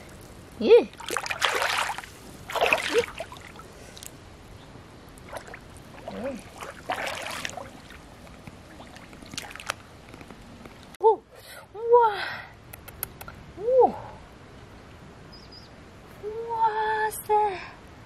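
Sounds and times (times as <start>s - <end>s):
hands splashing through water: 0.9s - 4.1s, 5.2s - 9.9s.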